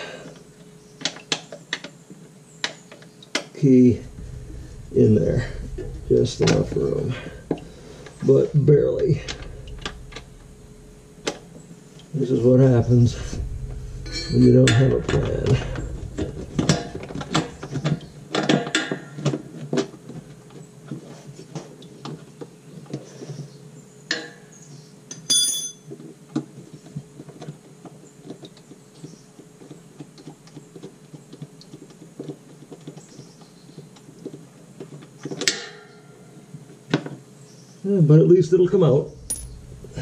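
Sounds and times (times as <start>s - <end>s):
loud metal clack: 3.9s - 19.2s, 38.7s - 40.0s
short metallic ring: 25.2s - 25.9s, 39.2s - 40.0s.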